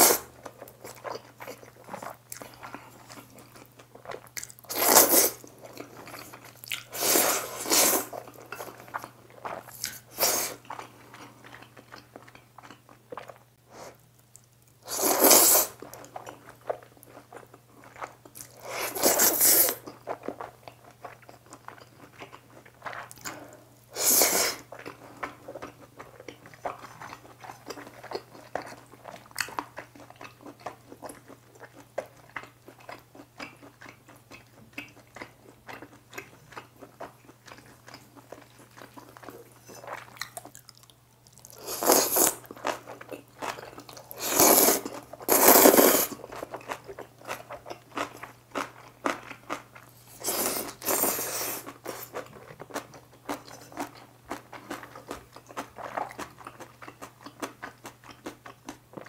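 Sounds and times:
noodle slurping: 0.0s - 0.3s, 4.7s - 5.4s, 6.9s - 8.3s, 14.8s - 15.8s, 18.6s - 19.8s, 23.9s - 24.7s, 41.6s - 42.5s, 44.1s - 46.3s, 50.2s - 52.2s
wet chewing: 0.0s - 59.0s.

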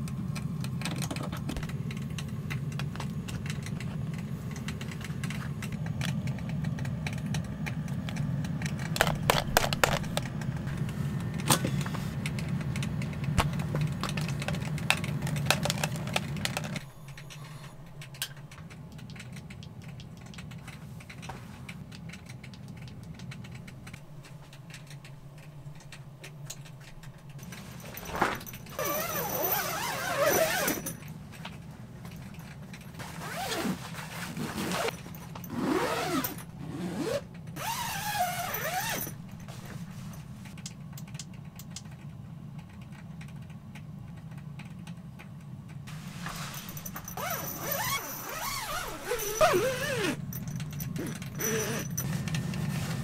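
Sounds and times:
steady low hum: 0.0s - 53.0s
clicks and taps of gear: 0.1s - 17.4s, 18.0s - 33.6s.

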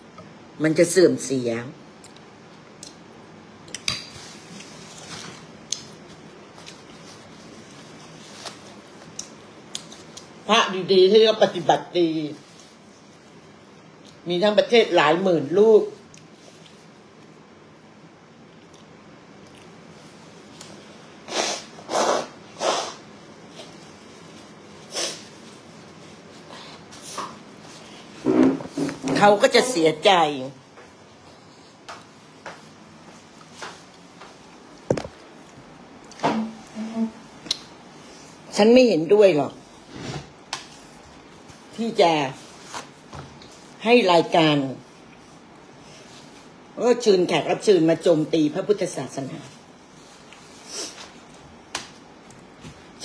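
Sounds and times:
soft chewing: 2.0s - 10.4s, 16.0s - 20.8s, 52.2s - 52.9s
woman blowing her nose: 21.3s - 23.0s.

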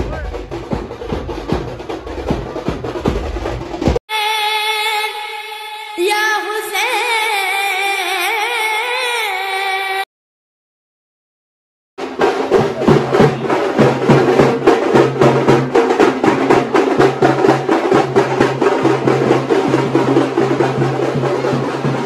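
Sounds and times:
drums playing fast: 0.0s - 4.0s, 12.0s - 22.0s.

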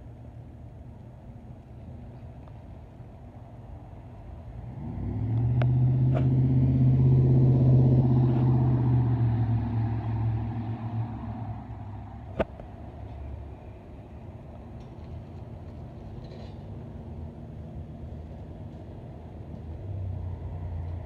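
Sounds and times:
vehicle engine passing by: 4.6s - 12.4s.

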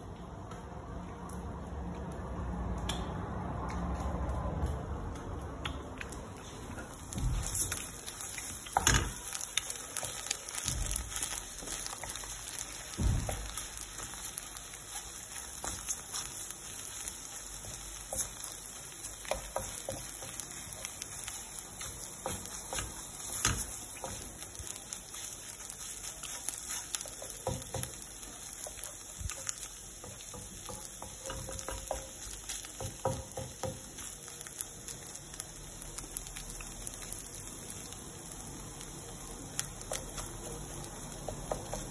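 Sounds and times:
eggs sizzling in a frying pan: 4.9s - 41.9s
spatula scraping and clicking on pan: 13.3s - 34.1s.

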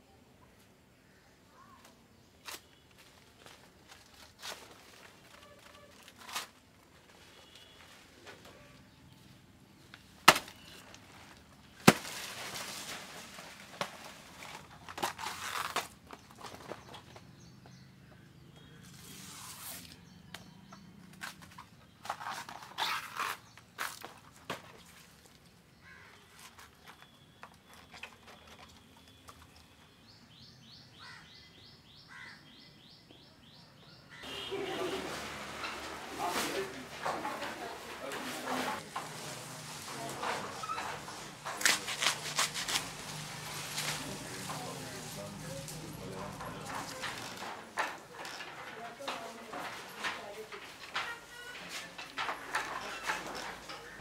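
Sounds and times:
leaves rustling: 9.9s - 17.2s, 18.8s - 20.0s, 34.2s - 54.0s
fibrous stem tearing and scraping: 13.8s - 16.6s, 21.2s - 24.2s, 37.0s - 54.0s.

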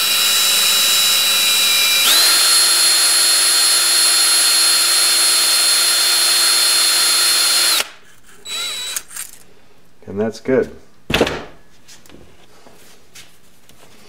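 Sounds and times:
electric drill whining: 0.0s - 9.4s.

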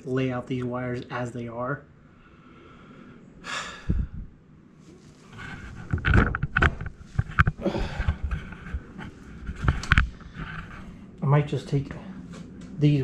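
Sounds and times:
clicks and knocks: 5.9s - 7.6s.

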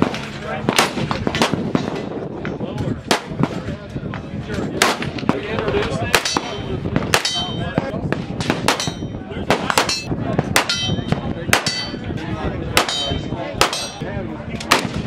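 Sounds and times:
gunshots: 0.0s - 2.1s, 4.8s - 7.5s, 8.1s - 12.0s, 12.8s - 14.0s, 14.7s - 15.0s
steel target clanging: 6.1s - 7.9s, 8.5s - 12.1s, 12.8s - 14.0s.

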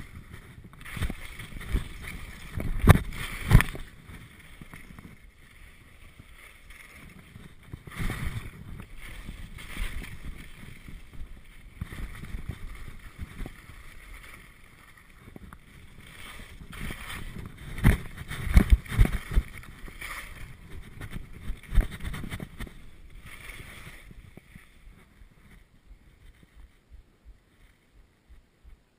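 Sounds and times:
skis scraping over hard snow: 0.0s - 26.8s
wind rushing on microphone: 0.0s - 27.6s
skis knocking on bumps: 0.0s - 28.9s.

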